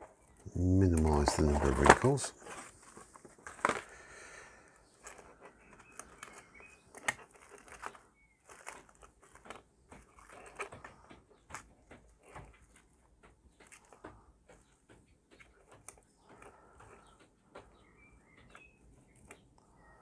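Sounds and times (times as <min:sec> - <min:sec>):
cling film crinkling: 0:00.0 - 0:12.8
small clicks: 0:05.0 - 0:19.7.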